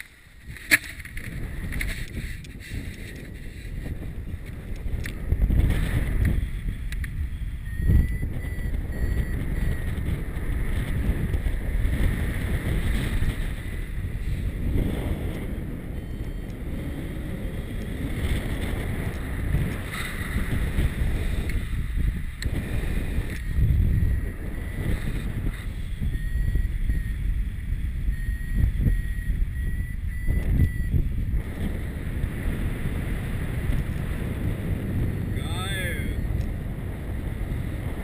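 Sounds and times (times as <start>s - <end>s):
wind buffeting microphone: 0.0s - 38.0s
variometer beeps: 6.9s - 14.0s, 15.0s - 18.0s, 22.4s - 31.6s.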